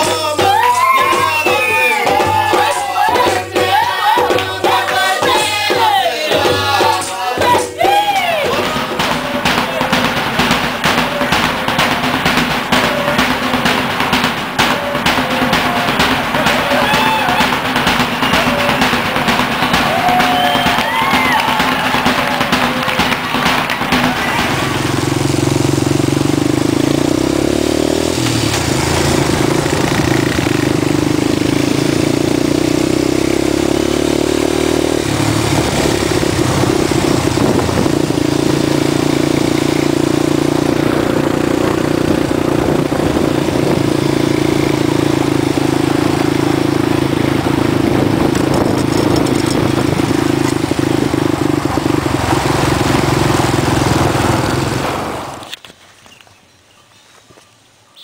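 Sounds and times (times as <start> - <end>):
quad bike engine running: 8.5 - 55.6.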